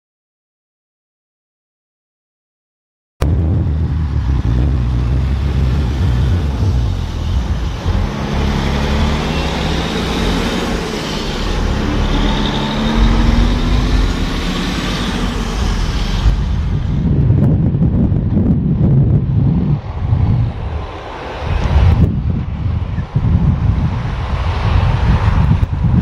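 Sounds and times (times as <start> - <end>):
truck engine: 3.2 - 18.9
tyre and road noise: 3.2 - 26.0.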